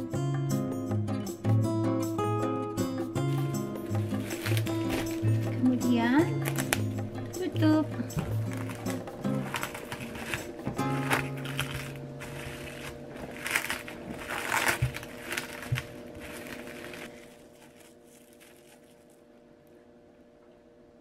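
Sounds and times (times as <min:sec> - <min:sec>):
plastic cling wrap crinkling: 0:03.2 - 0:07.3, 0:08.1 - 0:19.4.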